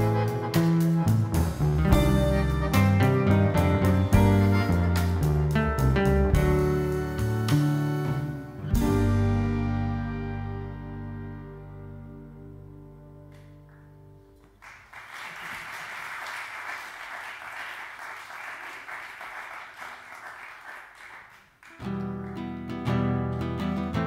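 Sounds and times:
low notes: 0.0 - 14.6
audience applauding: 14.4 - 22.5
strummed acoustic guitar: 21.8 - 24.0.

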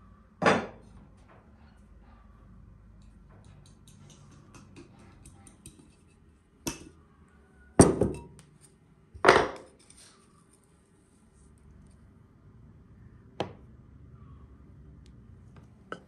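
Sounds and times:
kitchenware knocking on wooden table: 0.4 - 0.8, 7.8 - 8.3, 9.2 - 9.7.

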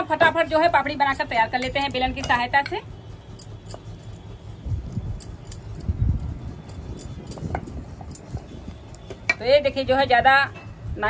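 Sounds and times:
bangles clinking: 0.8 - 8.6.

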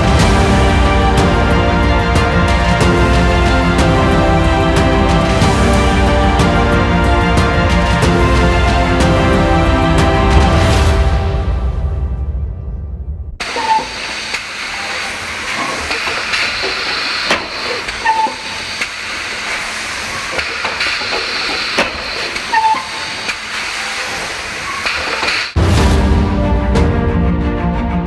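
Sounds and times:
compressed air hissing: 13.4 - 25.6.

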